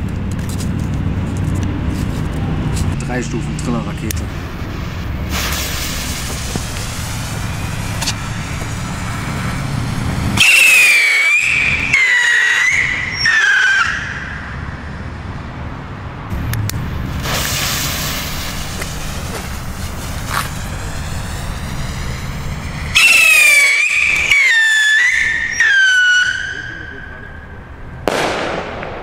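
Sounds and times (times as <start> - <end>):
rocket whistling: 4.4 - 14.7, 16.7 - 29.0.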